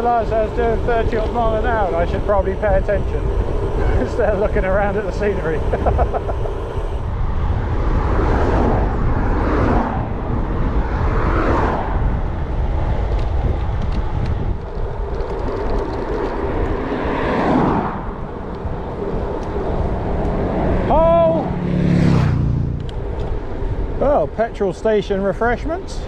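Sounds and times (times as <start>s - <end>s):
cars passing: 0.0s - 26.0s
wind rumble on microphone: 0.0s - 26.0s.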